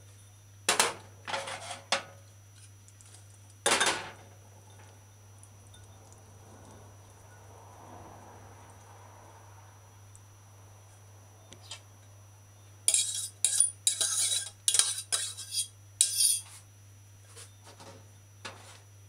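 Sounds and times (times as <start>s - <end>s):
metal spoon scraping a saucepan: 12.9s - 16.6s.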